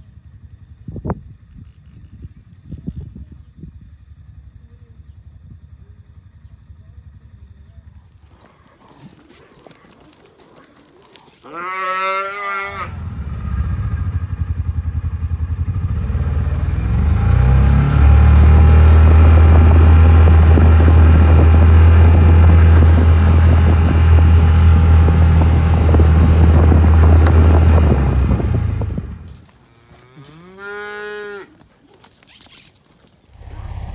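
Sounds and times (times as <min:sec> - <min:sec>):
vehicle engine running: 0:00.0 - 0:11.4, 0:12.7 - 0:29.6, 0:33.2 - 0:33.9
calf bawling: 0:08.1 - 0:13.1.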